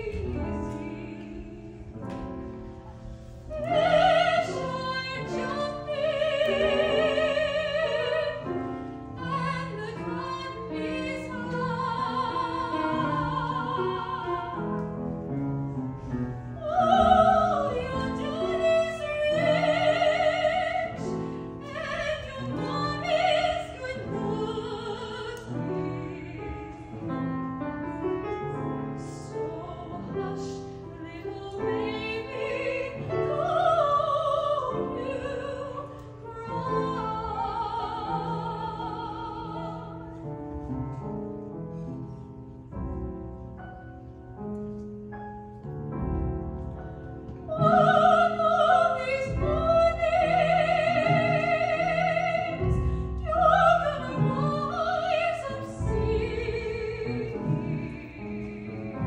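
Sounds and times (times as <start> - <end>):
piano accompaniment: 0.0 - 59.0
woman singing operatically: 3.5 - 8.5, 9.2 - 14.6, 16.6 - 26.6, 29.0 - 40.0, 47.5 - 59.0.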